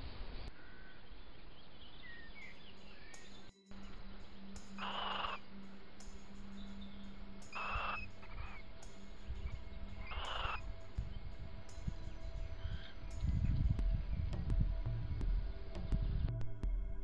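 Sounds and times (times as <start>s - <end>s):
small birds chirping: 0.4s - 14.4s
owl giving shrill calls: 4.8s - 5.4s, 7.5s - 8.6s, 10.0s - 10.7s.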